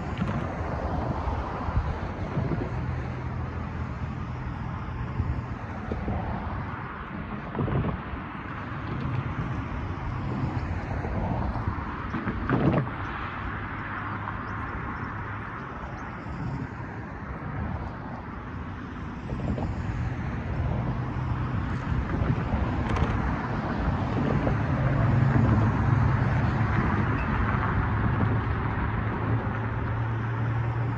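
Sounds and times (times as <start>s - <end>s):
cars driving over railroad crossing: 0.0s - 30.9s.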